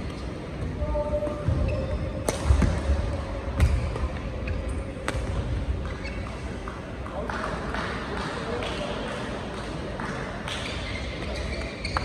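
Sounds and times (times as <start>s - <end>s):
rackets hitting shuttlecock: 2.2s - 4.2s.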